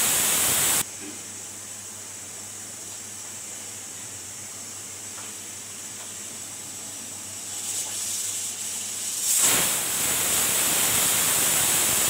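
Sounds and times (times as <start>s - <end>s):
pressure cooker steam hiss: 0.0s - 0.8s, 7.3s - 12.0s.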